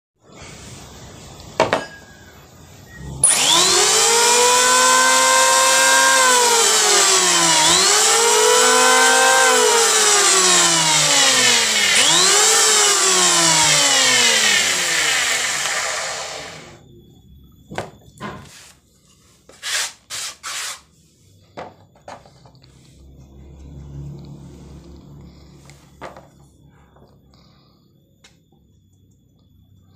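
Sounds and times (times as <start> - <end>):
electric planer motor whine: 3.2 - 16.8.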